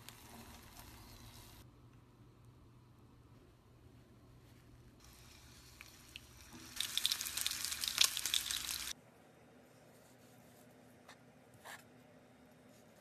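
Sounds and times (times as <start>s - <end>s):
chicken sizzling in a hot pan: 5.0s - 9.0s.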